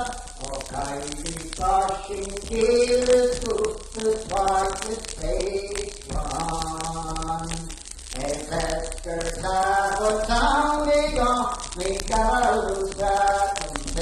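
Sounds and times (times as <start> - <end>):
person singing unaccompanied folk song: 0.0 - 14.0.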